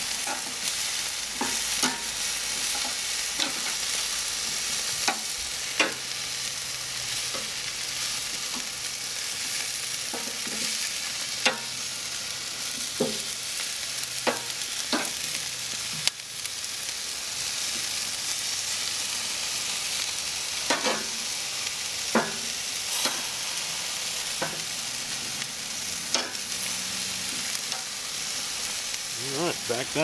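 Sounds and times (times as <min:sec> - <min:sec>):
chicken sizzling on grill: 0:00.0 - 0:30.0
tongs clicking on grate: 0:26.1 - 0:26.4.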